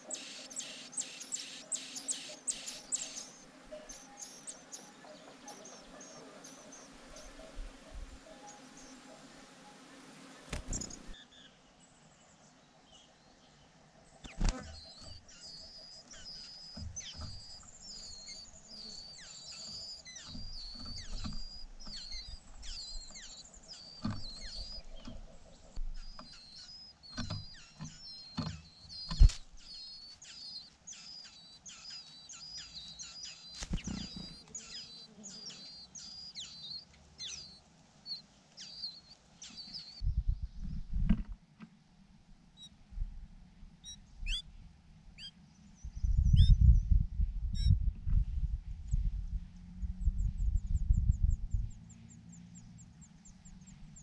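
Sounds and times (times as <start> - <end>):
nestlings begging chirps: 0.0 - 11.6, 14.2 - 40.6, 43.8 - 44.5, 45.2 - 46.7
rustles: 2.7 - 12.5, 14.1 - 40.0.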